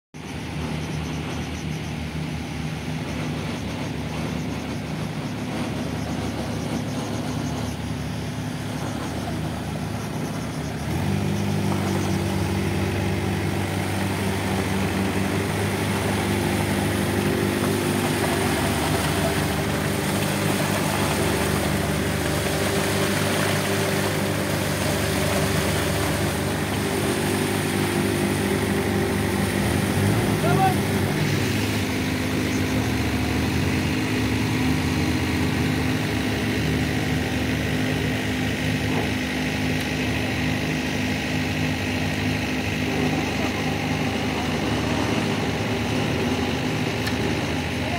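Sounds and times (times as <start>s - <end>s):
diesel engines running: 0.2s - 47.9s.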